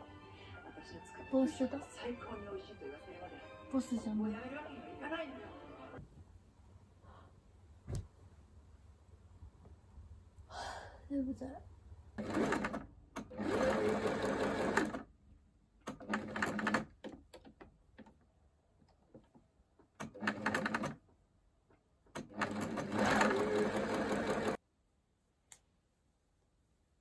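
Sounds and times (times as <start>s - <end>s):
sewing machine stitching: 12.2s - 15.1s, 15.8s - 17.5s, 20.0s - 21.0s, 22.1s - 24.6s
small click: 25.5s - 25.7s.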